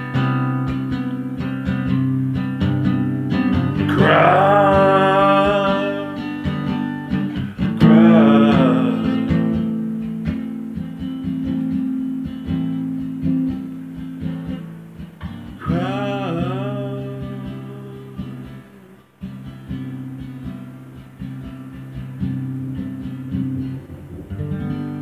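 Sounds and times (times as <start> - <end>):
acoustic guitar strumming chords: 0.0 - 25.0
wordless vocal line: 3.8 - 9.8, 15.6 - 19.1.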